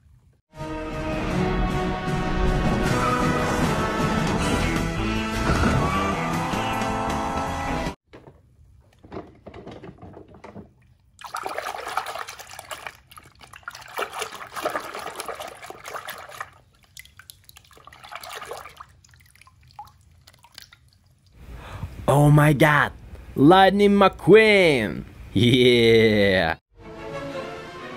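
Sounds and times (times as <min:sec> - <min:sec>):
film score music: 0:00.6 - 0:08.0, 0:26.8 - 0:27.9
water sloshing in plastic tub: 0:09.0 - 0:21.4.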